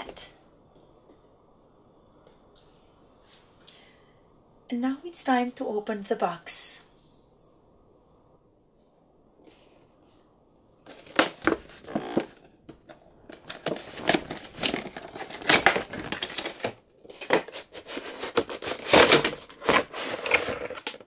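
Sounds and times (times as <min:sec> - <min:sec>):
cardboard and plastic packaging rustling: 0:10.8 - 0:21.0.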